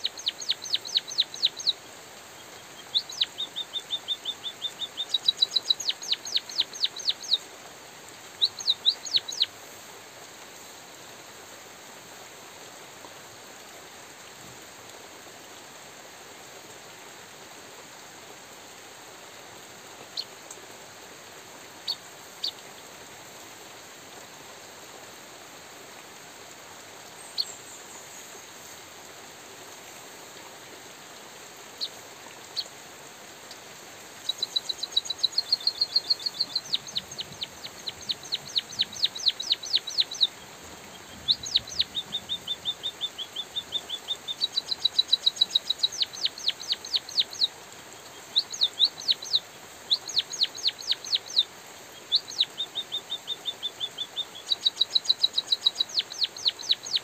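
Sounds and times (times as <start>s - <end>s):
bird singing: 0.0s - 1.8s, 2.4s - 7.4s, 8.3s - 9.5s, 34.2s - 57.0s
light drizzle hiss: 0.0s - 57.0s.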